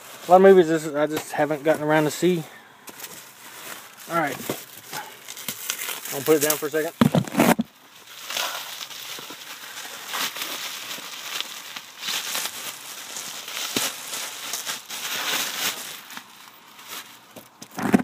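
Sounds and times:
packaging rustling and crinkling: 0.0s - 18.0s.

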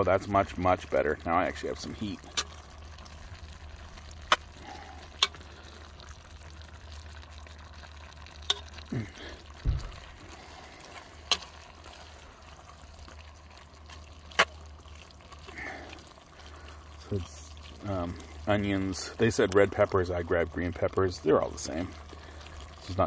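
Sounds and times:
meat and vegetables sizzling: 0.0s - 23.0s
low knock: 9.6s - 9.9s.

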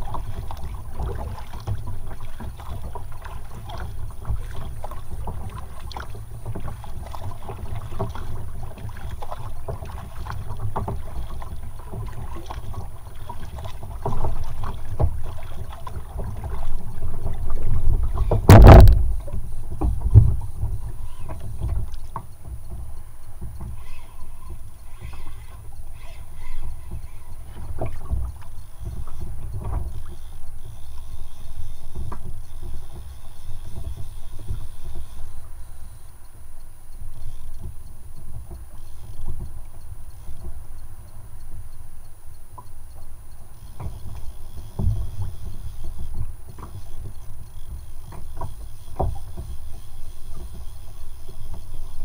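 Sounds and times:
paddle strokes splashing: 0.0s - 36.0s, 37.0s - 52.0s
water lapping against hull: 0.0s - 52.0s
wind on microphone: 16.1s - 21.9s.

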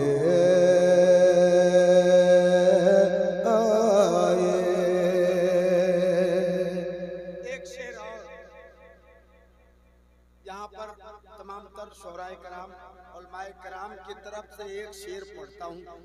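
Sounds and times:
man singing into a microphone: 0.0s - 8.6s.

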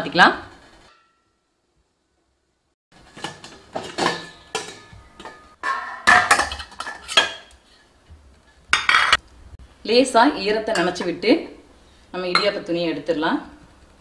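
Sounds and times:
steel plates clinking: 3.1s - 7.5s.

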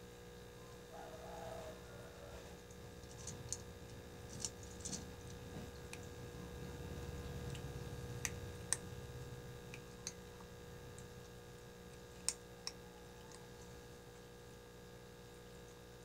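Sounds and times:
faint steady hum: 0.0s - 16.0s
teeth clicking on metal plate: 9.7s - 11.1s.

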